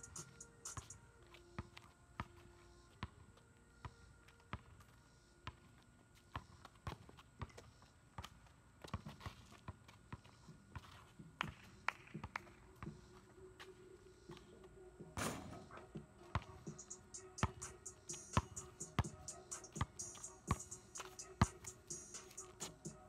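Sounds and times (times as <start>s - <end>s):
basketball bouncing on pavement: 6.3s - 13.0s, 17.4s - 17.8s, 18.4s - 21.8s.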